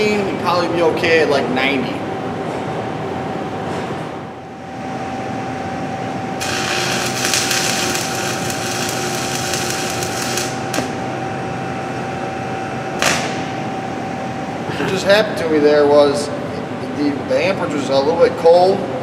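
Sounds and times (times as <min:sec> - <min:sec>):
welding arc crackling and hissing: 0:06.4 - 0:11.0.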